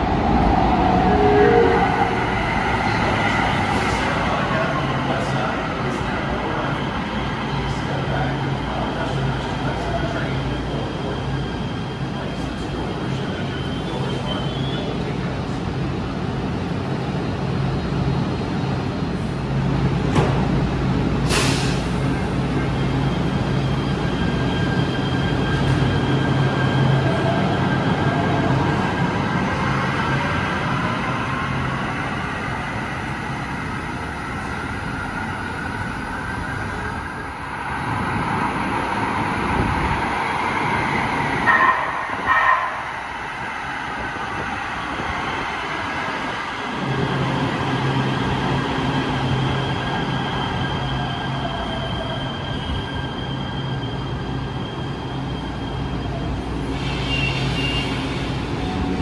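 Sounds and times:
train rumble and hum: 0:00.0 - 0:59.0
short high tones: 0:00.9 - 0:02.7.

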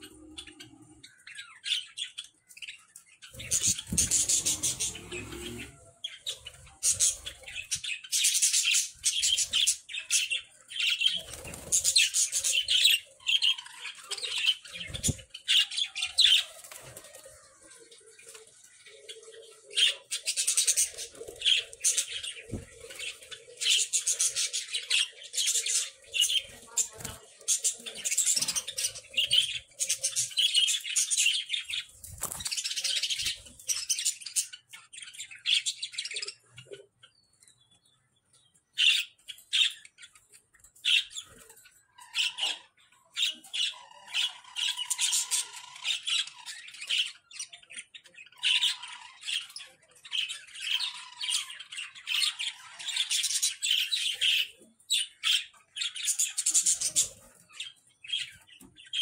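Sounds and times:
budgerigars chattering: 0:03.2 - 0:16.5, 0:41.9 - 0:59.0.

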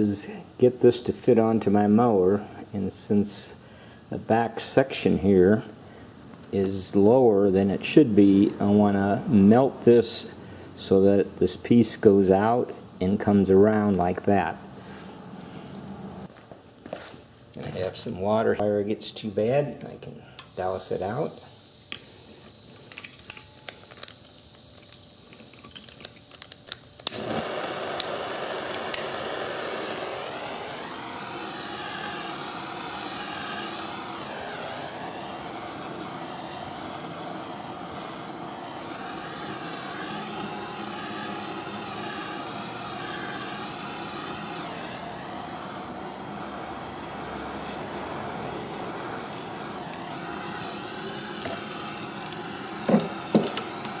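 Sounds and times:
propane torch flame rushing: 0:20.4 - 0:54.0
torch igniter clicks: 0:21.4 - 0:45.8, 0:49.6 - 0:54.0.

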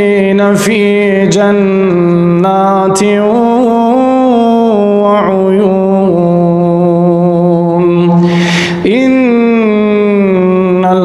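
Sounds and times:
man chanting melodically: 0:00.0 - 0:11.0
breath drawn: 0:08.2 - 0:08.8.

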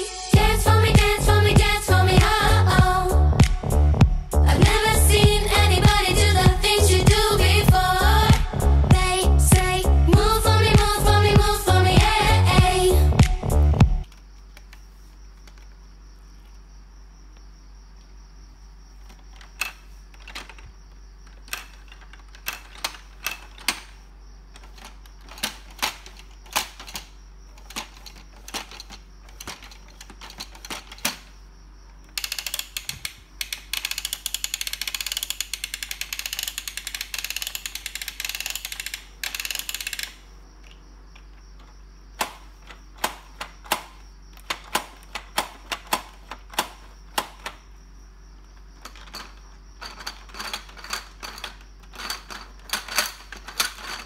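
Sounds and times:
plastic toy pieces clicking and clacking: 0:19.0 - 0:31.3, 0:32.0 - 0:47.6, 0:48.8 - 0:54.0
rapid mechanical clicking: 0:32.1 - 0:40.2.

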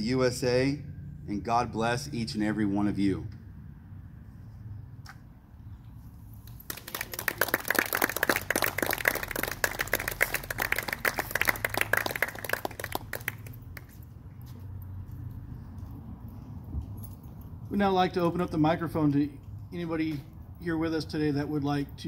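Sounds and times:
crowd applauding: 0:06.7 - 0:14.0.

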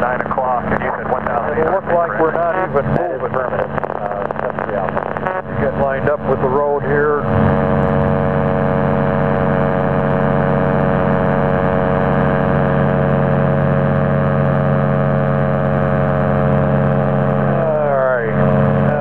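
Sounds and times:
light aircraft engine drone: 0:00.0 - 0:19.0.

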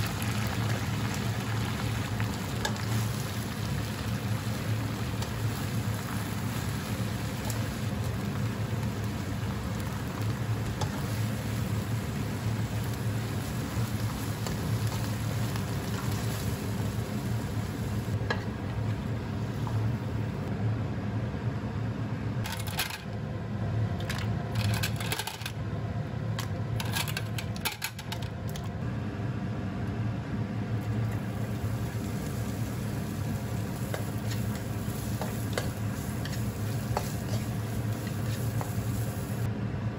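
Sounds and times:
stir-fry sizzling: 0:00.0 - 0:20.5, 0:30.8 - 0:39.5
spatula scraping pan: 0:33.8 - 0:39.0.

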